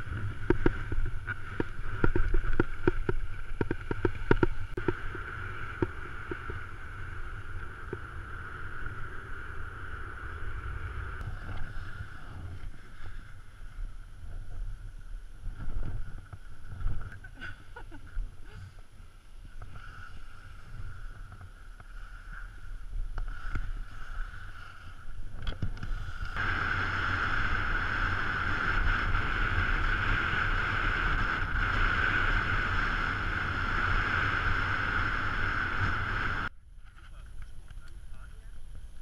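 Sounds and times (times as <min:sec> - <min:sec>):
wind rushing over microphone: 0:00.0 - 0:18.8, 0:19.4 - 0:39.0
skis hissing on snow: 0:19.4 - 0:25.1.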